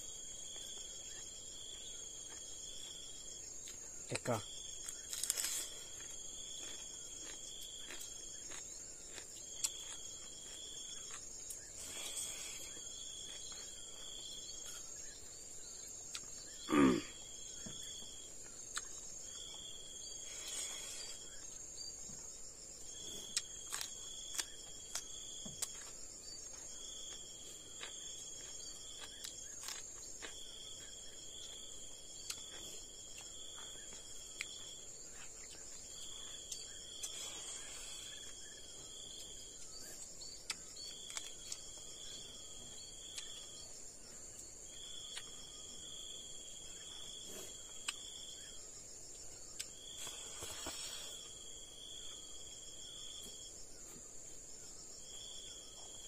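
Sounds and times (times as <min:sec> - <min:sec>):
insect chirping call: 0:00.0 - 0:56.0
insects droning: 0:00.0 - 0:56.0
eating with hands: 0:04.8 - 0:14.9, 0:16.0 - 0:17.3, 0:17.9 - 0:21.6, 0:23.0 - 0:43.5, 0:46.8 - 0:48.2, 0:49.6 - 0:51.4.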